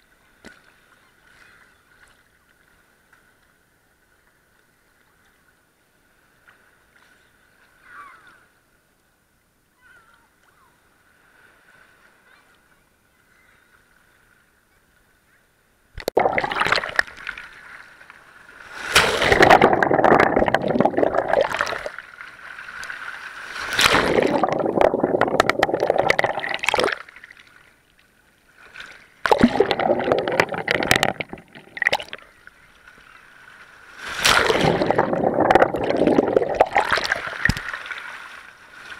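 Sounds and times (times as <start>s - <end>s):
water surging: 16.0s - 17.4s, 18.7s - 22.1s, 22.8s - 27.2s, 29.2s - 32.4s, 33.9s - 38.5s
sea water sloshing and gurgling: 16.0s - 27.9s, 28.5s - 38.9s.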